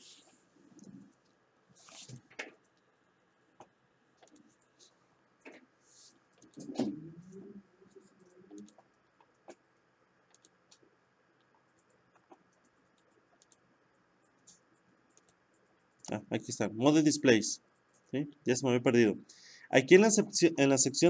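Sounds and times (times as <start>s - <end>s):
computer mouse clicks: 3.6s - 4.6s, 6.3s - 6.8s, 7.9s - 9.6s, 10.2s - 16.2s.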